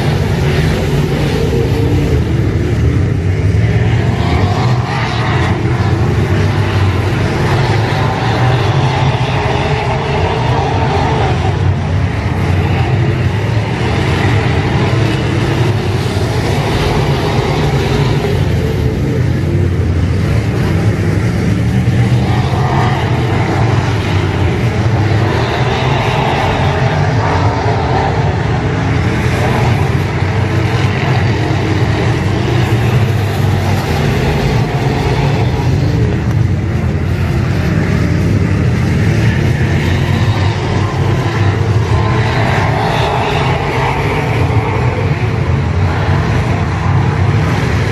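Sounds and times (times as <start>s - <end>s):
race car engines droning: 0.0s - 47.9s.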